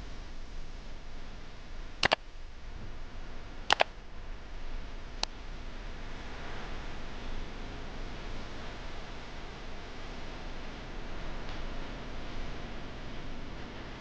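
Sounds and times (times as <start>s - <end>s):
mouse clicks: 2.0s - 2.2s, 3.7s - 3.9s.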